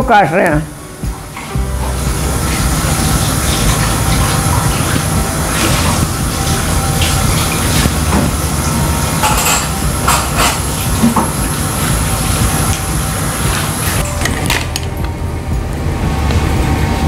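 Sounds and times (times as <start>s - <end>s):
steady low rumble: 10.7s - 17.0s.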